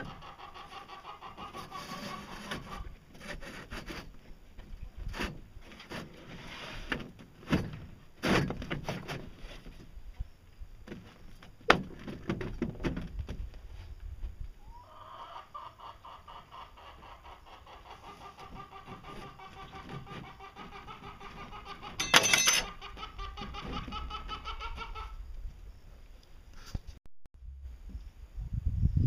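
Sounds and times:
chicken clucking: 0:00.0 - 0:03.0, 0:14.6 - 0:25.3.

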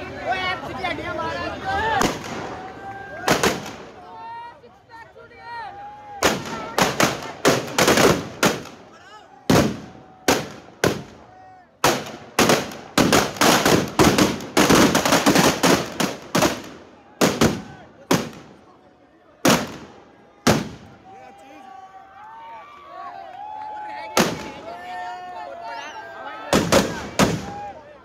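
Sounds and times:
firecrackers banging: 0:02.0 - 0:04.0, 0:06.2 - 0:08.9, 0:09.5 - 0:18.7, 0:19.4 - 0:21.0, 0:24.2 - 0:24.6, 0:26.5 - 0:27.7.

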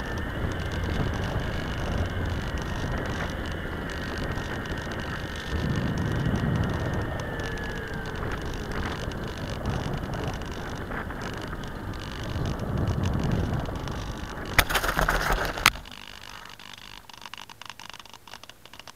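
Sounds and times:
wind rushing over microphone: 0:00.0 - 0:15.8
electric motor whine: 0:00.0 - 0:16.8
plane scraping across dirt: 0:08.1 - 0:16.9.

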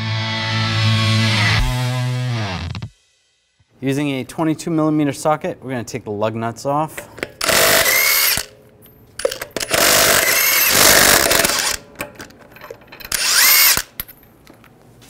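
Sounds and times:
impact wrench spinning lug nuts: 0:07.0 - 0:08.6, 0:09.2 - 0:14.2.

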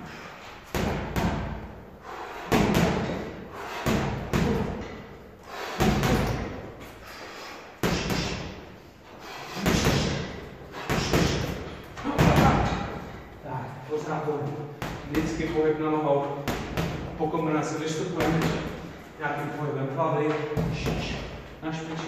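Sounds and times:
gloves punching heavy bag: 0:02.4 - 0:05.0, 0:05.6 - 0:06.6, 0:07.8 - 0:08.6, 0:09.5 - 0:13.1.

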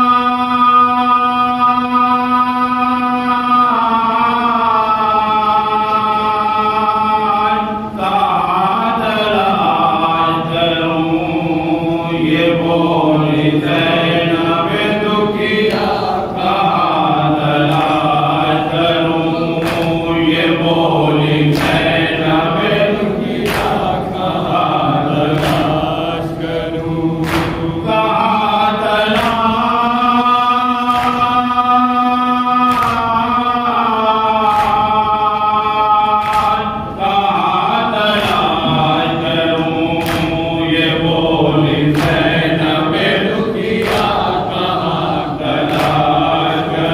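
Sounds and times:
group of men chanting: 0:00.0 - 0:46.9
man chanting into microphone: 0:00.0 - 0:46.9
chest-beating slaps: 0:17.4 - 0:28.0, 0:28.9 - 0:29.8, 0:30.8 - 0:31.4, 0:32.7 - 0:33.2, 0:34.4 - 0:35.0, 0:36.2 - 0:37.2, 0:38.0 - 0:46.9.

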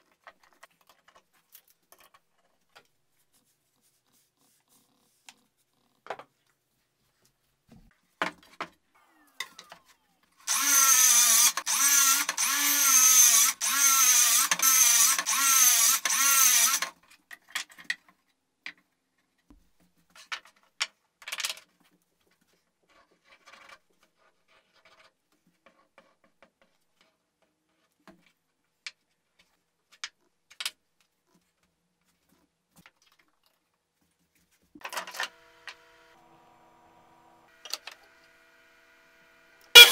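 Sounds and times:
power tool motor running: 0:10.5 - 0:16.9, 0:34.8 - 0:39.9.

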